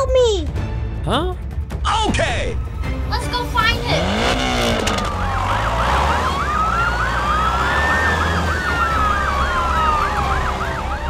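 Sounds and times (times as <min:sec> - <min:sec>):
electronic siren wail: 0:03.9 - 0:11.0
electronic siren yelp: 0:03.9 - 0:11.0.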